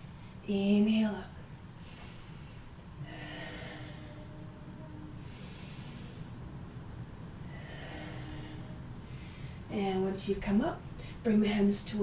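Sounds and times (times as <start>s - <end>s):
woman breathing: 1.8s - 6.6s, 7.3s - 9.7s.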